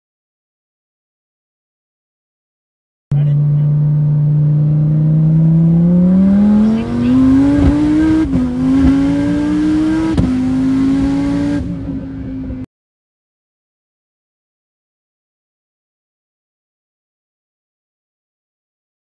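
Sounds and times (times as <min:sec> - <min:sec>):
car engine accelerating with upshifts: 0:03.1 - 0:12.7.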